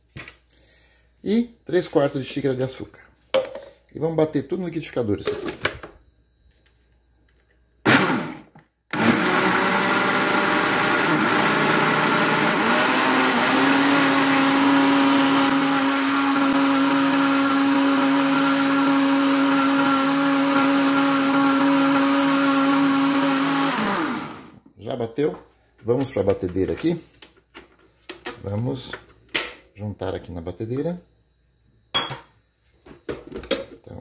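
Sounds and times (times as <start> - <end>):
blender running: 7.8 - 24.6.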